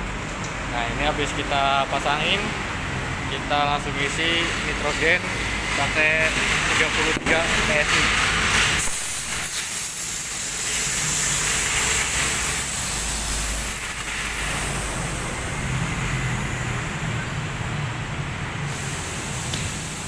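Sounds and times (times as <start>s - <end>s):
tyre inflator hissing: 7.0s - 15.9s, 18.7s - 20.0s.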